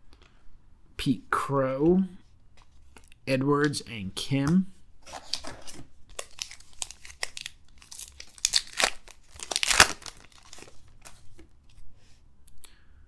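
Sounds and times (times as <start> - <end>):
wrapper tearing and crinkling: 5.1 - 11.2.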